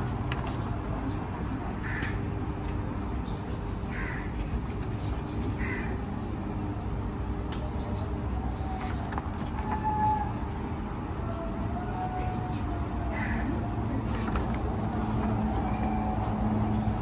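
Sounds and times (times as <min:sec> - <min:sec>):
crow cawing: 0:01.8 - 0:02.2, 0:03.9 - 0:04.4, 0:05.6 - 0:06.0, 0:13.1 - 0:13.6.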